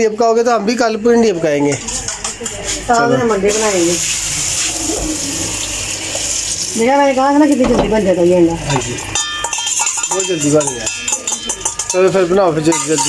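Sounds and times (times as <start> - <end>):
steel bowl clinking against pan: 1.7 - 3.5, 8.6 - 13.0.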